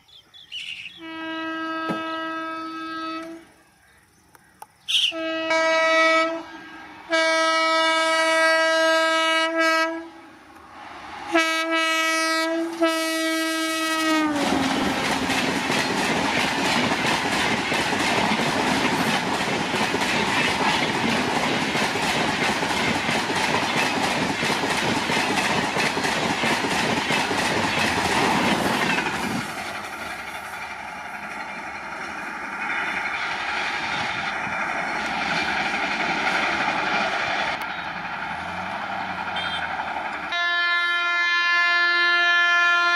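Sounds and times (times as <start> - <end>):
train horn blasts: 1.0 - 3.5, 4.9 - 10.4, 11.3 - 15.4, 39.2 - 42.9
train coaches rushing past: 4.9 - 42.9
train running away: 4.9 - 42.9.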